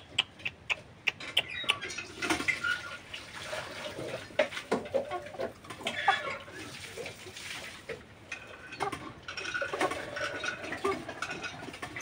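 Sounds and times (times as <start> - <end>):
chicken clucking: 0.0 - 7.4, 8.8 - 12.0.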